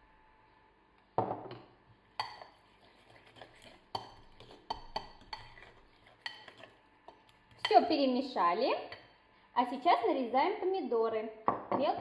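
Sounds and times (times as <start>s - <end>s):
fork scraping a clay bowl: 2.2s - 7.9s.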